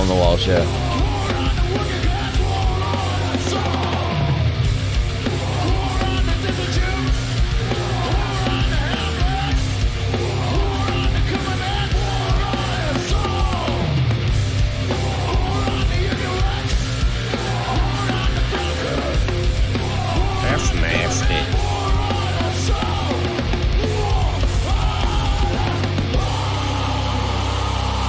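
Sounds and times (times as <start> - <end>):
shouted vocals: 0.0 - 4.4, 5.3 - 14.0, 15.0 - 28.0
distorted electric guitars: 0.0 - 28.0
drums: 0.0 - 28.0.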